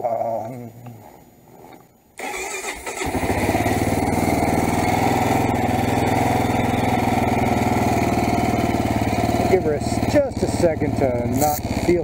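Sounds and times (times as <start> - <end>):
motorcycle engine idling: 3.0 - 12.0.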